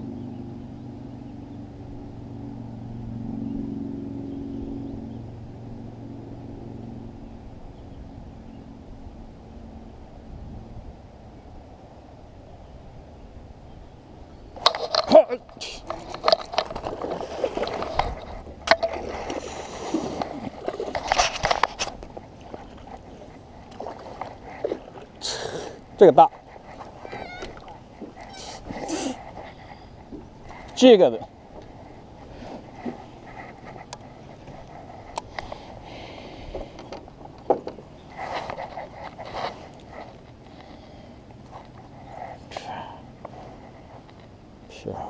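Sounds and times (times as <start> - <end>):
low motor hum: 0.0 - 14.6.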